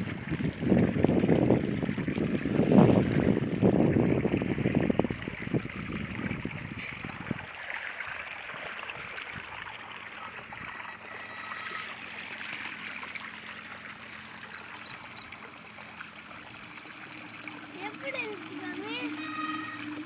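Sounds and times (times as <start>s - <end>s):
water gushing from a pipe: 0.0s - 20.0s.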